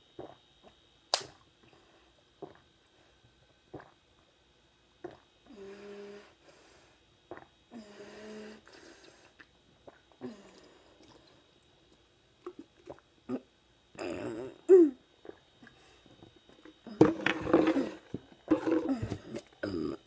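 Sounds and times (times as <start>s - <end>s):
person gulping water: 0.2s - 0.8s, 2.4s - 2.7s, 3.7s - 4.0s, 5.0s - 5.2s, 7.3s - 7.5s, 9.4s - 11.4s, 12.4s - 15.8s, 16.6s - 20.0s
hummed breath through nose: 7.7s - 9.4s.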